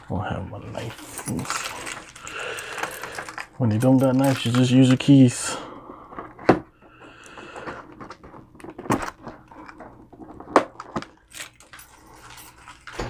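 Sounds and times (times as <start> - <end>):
tape and packaging crackles: 0.7 - 5.3.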